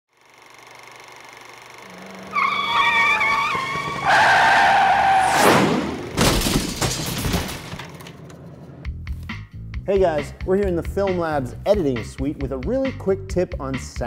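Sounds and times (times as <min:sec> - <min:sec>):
high wavering squeal: 0:01.8 - 0:05.4
crashing noise: 0:05.2 - 0:08.2.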